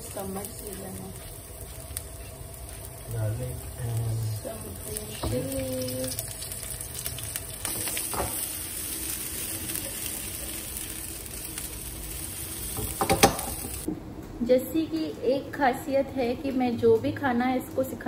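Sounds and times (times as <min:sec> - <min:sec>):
garlic sizzling in hot oil: 0:00.0 - 0:13.9.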